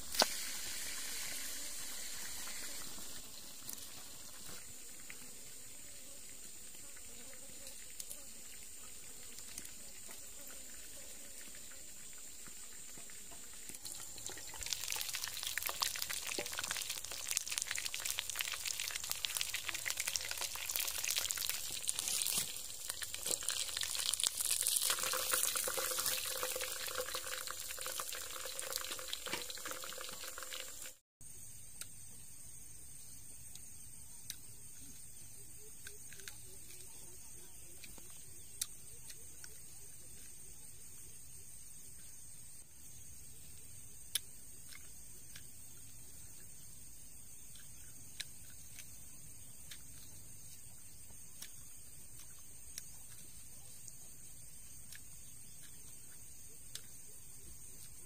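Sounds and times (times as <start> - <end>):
ribs frying sizzle: 0.0 - 5.7, 7.7 - 31.0
steady hiss: 0.0 - 36.4.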